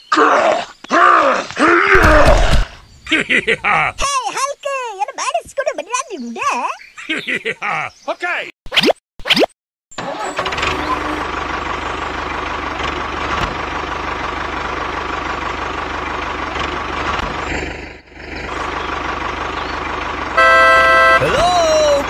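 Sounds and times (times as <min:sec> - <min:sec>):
tractor engine chugging: 0:10.0 - 0:22.0.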